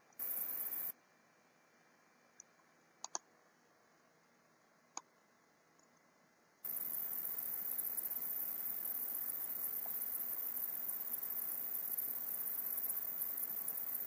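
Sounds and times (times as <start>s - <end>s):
electronic hiss: 0.0s - 1.0s, 6.7s - 14.0s.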